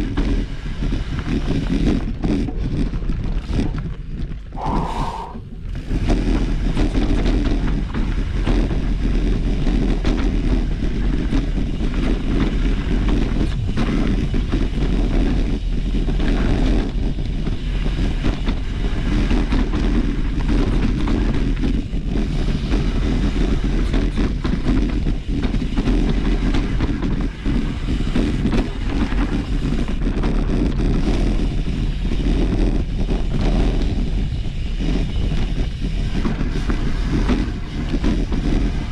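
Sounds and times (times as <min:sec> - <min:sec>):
bicycle tyre noise on trail: 0:00.0 - 0:38.9
wind rumble on microphone: 0:00.0 - 0:38.9.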